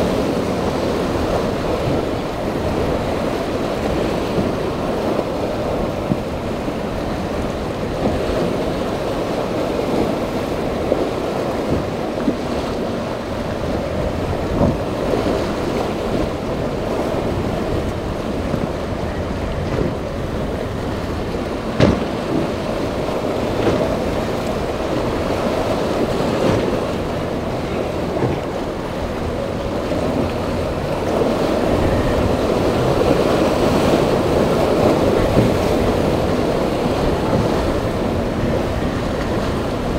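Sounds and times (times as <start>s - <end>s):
outboard boats running: 0.0s - 39.9s
waves breaking: 0.0s - 39.9s
wind buffeting microphone: 0.0s - 39.9s
sharp knock: 21.8s - 22.1s.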